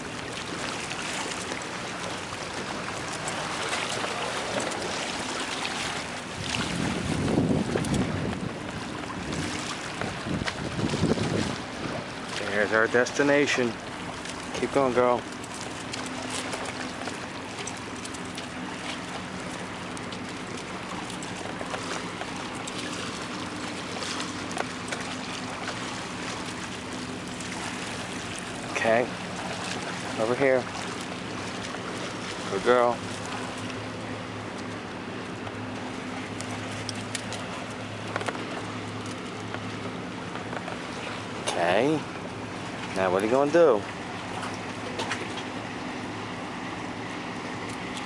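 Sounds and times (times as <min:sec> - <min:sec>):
sea surf: 0:00.0 - 0:48.0
water at rocky shore: 0:00.0 - 0:48.0
wind: 0:00.0 - 0:48.0
wind buffeting microphone: 0:06.3 - 0:12.4.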